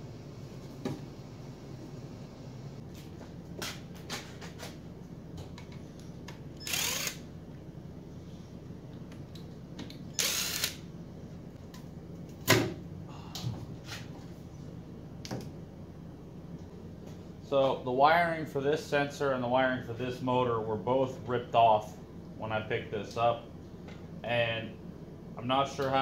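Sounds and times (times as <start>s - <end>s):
impact driver whining: 6.6s - 7.3s, 10.1s - 10.8s.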